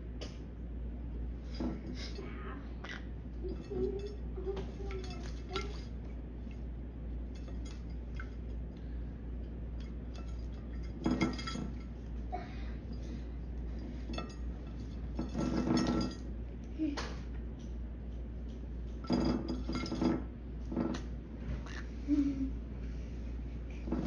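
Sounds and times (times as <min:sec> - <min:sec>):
clinks against a plate: 0:03.5 - 0:06.6, 0:07.3 - 0:08.6, 0:09.8 - 0:12.0, 0:13.8 - 0:16.3, 0:18.5 - 0:21.0.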